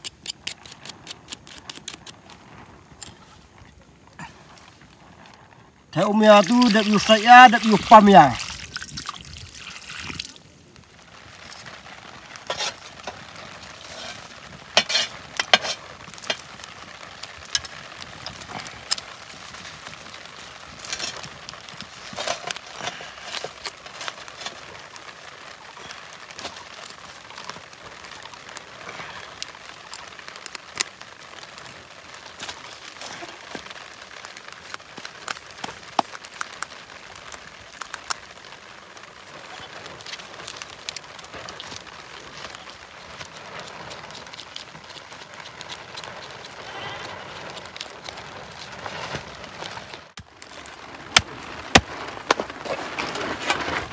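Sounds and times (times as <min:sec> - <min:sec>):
knife scraping charred skin: 0:00.0 - 0:02.3, 0:12.5 - 0:12.8, 0:13.8 - 0:16.4, 0:42.4 - 0:50.0.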